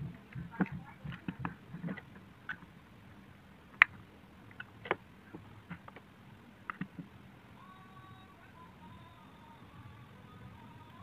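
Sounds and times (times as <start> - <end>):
plastic clicks and knocks: 6.7 - 7.1.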